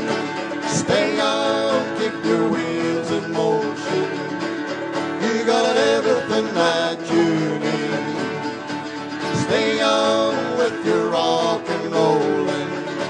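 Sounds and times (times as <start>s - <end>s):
acoustic guitars strumming: 0.0s - 13.0s
banjo picking: 0.0s - 13.0s.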